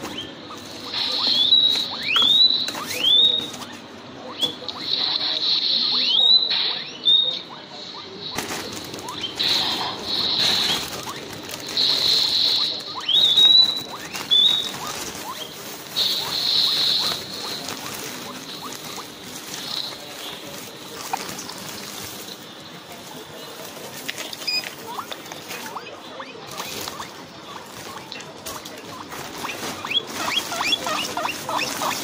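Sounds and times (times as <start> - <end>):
guinea pigs squealing: 0.0 - 32.0
hay rustling: 8.4 - 32.0.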